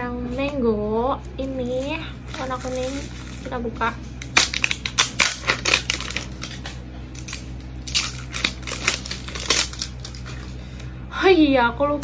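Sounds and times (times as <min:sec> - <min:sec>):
plastic shrink-wrap crinkling: 0:01.5 - 0:10.6.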